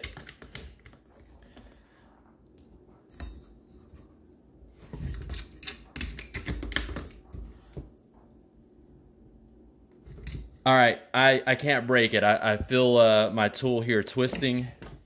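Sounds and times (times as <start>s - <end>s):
hand tool clicking and knocking: 0.0s - 1.8s, 5.1s - 7.3s.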